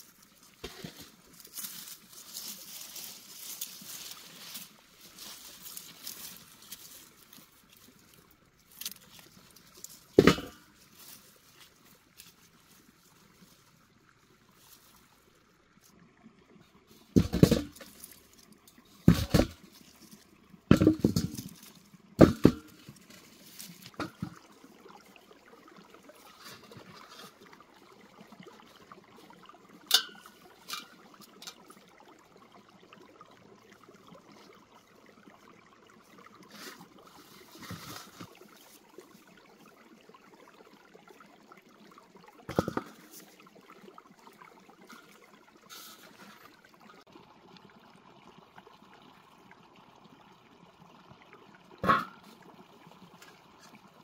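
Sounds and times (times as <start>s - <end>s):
thuds and rustles from soil: 17.2s - 18.2s, 19.0s - 19.8s, 20.7s - 24.4s, 37.4s - 38.4s.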